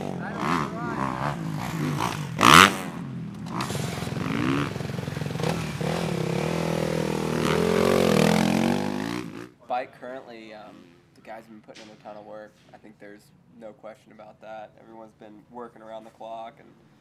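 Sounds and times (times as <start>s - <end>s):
motorcycle engine revving: 0.0s - 9.6s.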